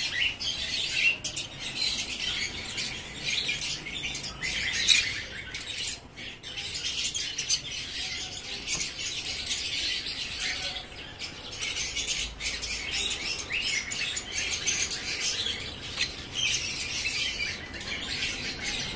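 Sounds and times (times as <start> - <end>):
birds chirping and twittering: 0.0 - 18.9.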